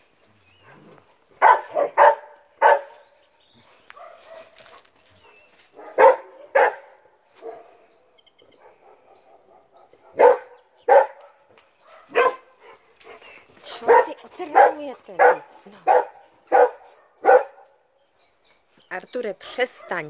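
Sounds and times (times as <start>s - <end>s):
dog barking: 1.4s - 3.0s, 3.6s - 4.9s, 5.7s - 7.8s, 8.6s - 12.8s, 13.7s - 17.8s.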